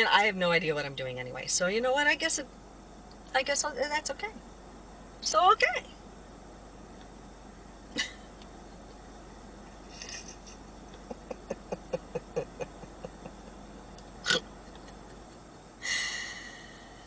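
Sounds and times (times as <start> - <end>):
woman giggling: 8.0 - 8.2, 10.0 - 13.6, 14.6 - 15.5.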